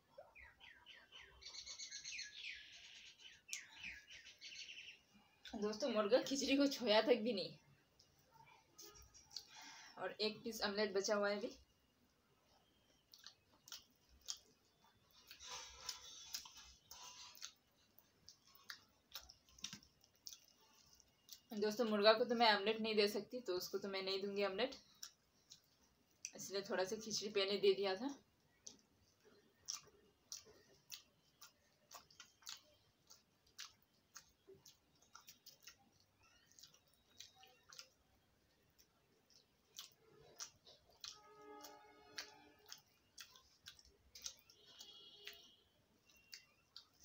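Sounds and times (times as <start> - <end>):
faint chewing: 2.7 - 6.8, 7.6 - 10.0, 11.4 - 22.0, 23.7 - 47.0.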